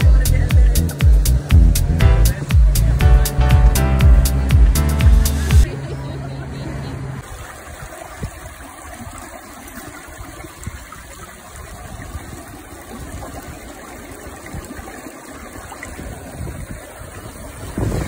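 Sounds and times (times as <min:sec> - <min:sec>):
water rushing over rocks: 0:07.2 - 0:18.0.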